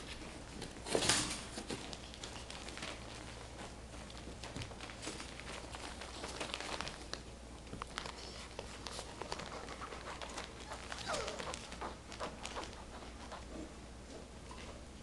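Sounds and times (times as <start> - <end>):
puppies scuffling: 0.0 - 14.8
paws and claws clicking: 1.6 - 13.8
puppy yip: 11.0 - 11.6.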